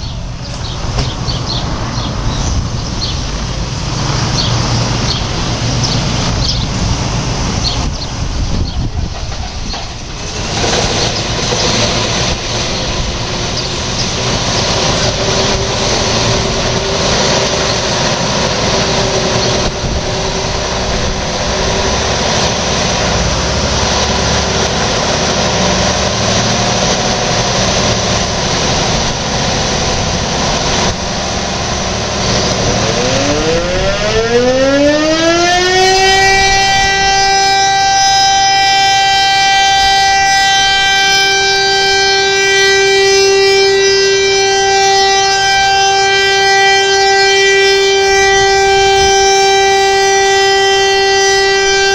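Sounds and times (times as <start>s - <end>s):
heavy vehicle engine rumbling: 0.0s - 51.9s
siren wailing: 11.7s - 26.3s, 31.7s - 51.9s.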